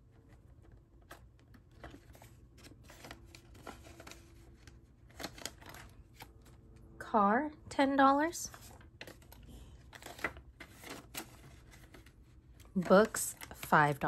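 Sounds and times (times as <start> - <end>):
paper banknotes rustling: 0.0 - 6.6, 8.5 - 14.0
binder page turning: 0.3 - 6.6, 8.5 - 14.0.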